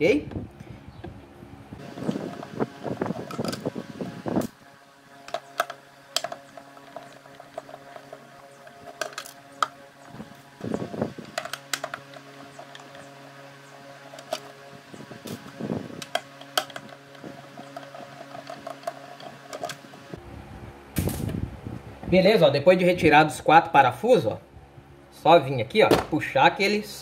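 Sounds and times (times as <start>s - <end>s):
steady background hum: 0.0s - 27.0s
scraping and handling of plastic base: 5.2s - 13.1s, 15.2s - 20.1s.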